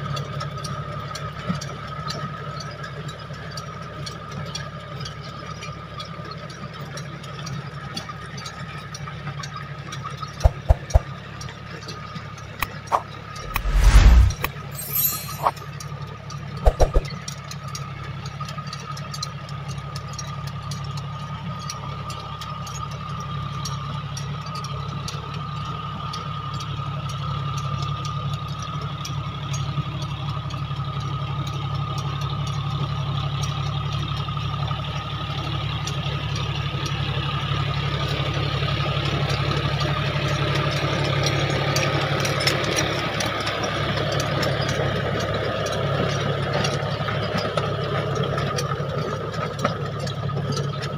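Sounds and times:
steady whine: 12.7 - 15.6
tractor diesel engine under load: 25.3 - 50.9.

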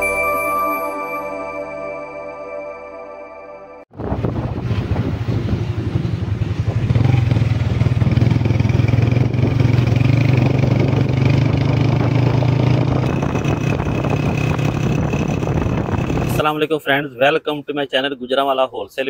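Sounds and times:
wind and road noise: 3.9 - 17.1
vehicle engine running: 4.0 - 16.5.

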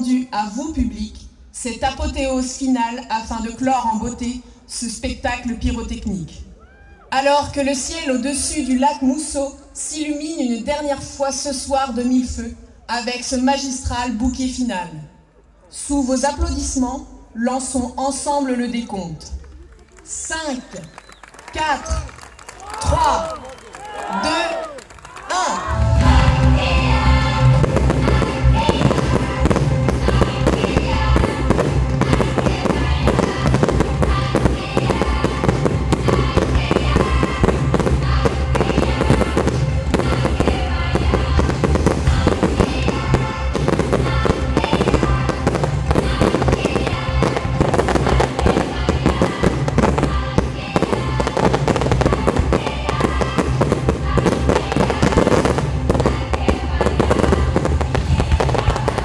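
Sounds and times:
music soundtrack: 25.6 - 59.0
fireworks bursting: 25.7 - 59.0.

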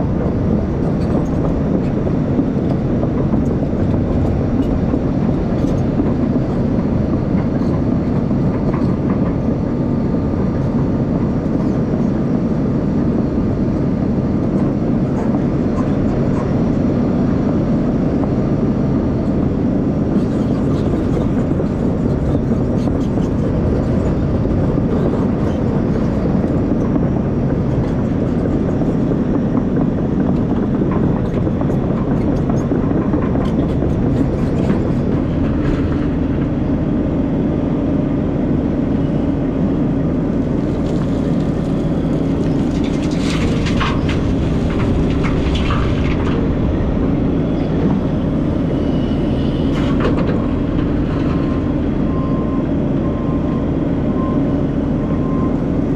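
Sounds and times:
excavator diesel engine running: 0.0 - 55.9
clanks and rattles: 27.7 - 36.5, 42.4 - 48.7.

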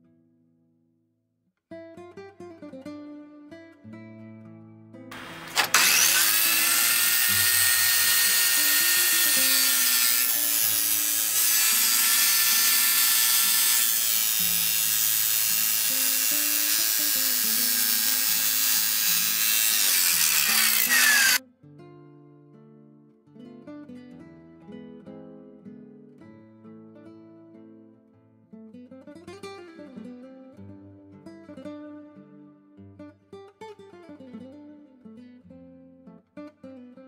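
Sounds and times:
circular saw grinding through metal: 5.2 - 21.4.

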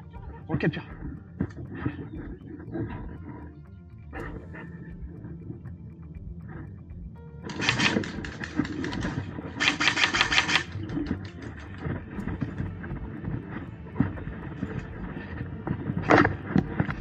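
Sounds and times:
airsoft gun firing full-auto bursts: 7.5 - 11.4.

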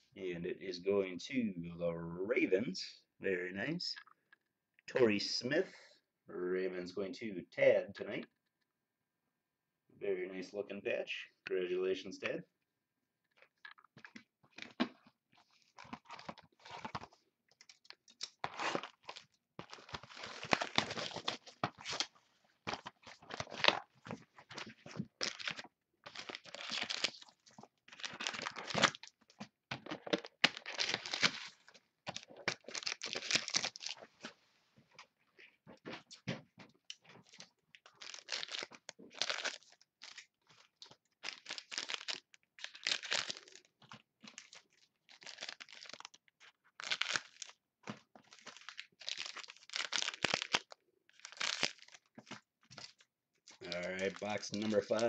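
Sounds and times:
plastic wrapping tearing and crinkling: 14.5 - 34.0, 37.2 - 47.6, 48.2 - 55.0.

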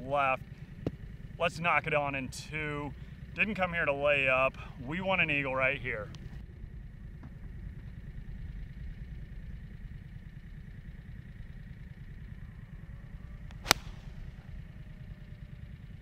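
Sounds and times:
low rumble: 5.9 - 16.0
golf club striking ball: 13.5 - 14.6.

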